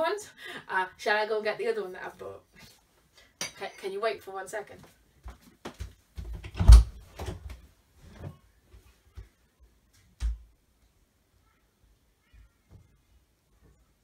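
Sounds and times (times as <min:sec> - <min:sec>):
faint footsteps: 0:04.7 - 0:06.5.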